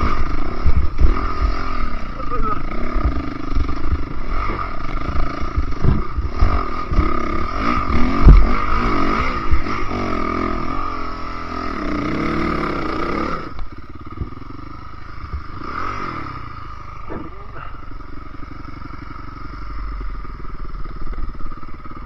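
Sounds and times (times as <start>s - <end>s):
dirt bike engine revving: 0.0s - 22.0s
knocks from bumps: 3.0s - 7.1s.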